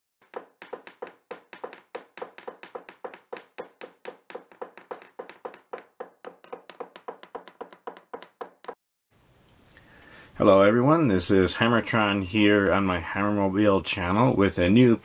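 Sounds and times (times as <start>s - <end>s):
rapid sharp tapping: 0.2s - 8.8s.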